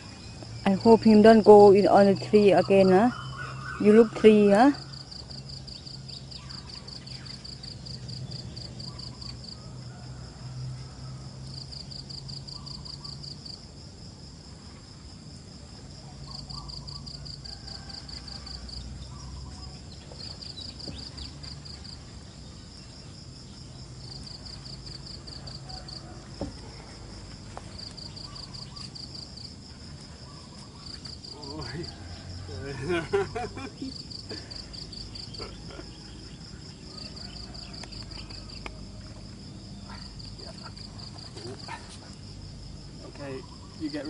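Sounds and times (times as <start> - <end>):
insects chirping in trills: 0.0 - 44.0.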